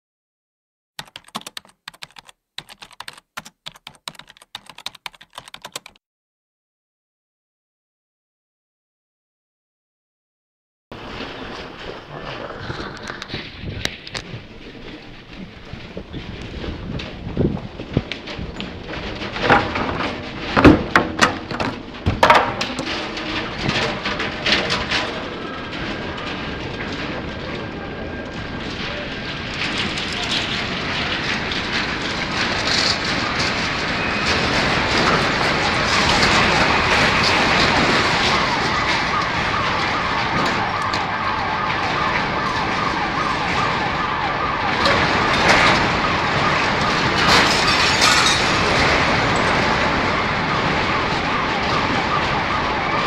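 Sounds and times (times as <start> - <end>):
keyboard typing: 1.0 - 6.0
objects clattering and knocking: 11.0 - 53.0.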